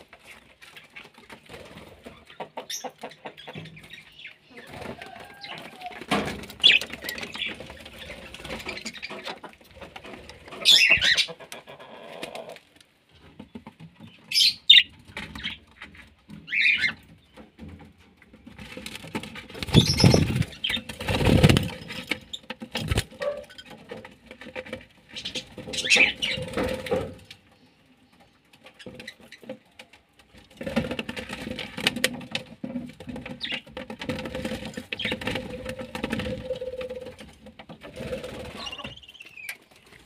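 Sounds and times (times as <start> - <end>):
wings fluttering: 0.2 - 11.3, 18.5 - 24.0, 25.1 - 27.3, 30.5 - 40.0.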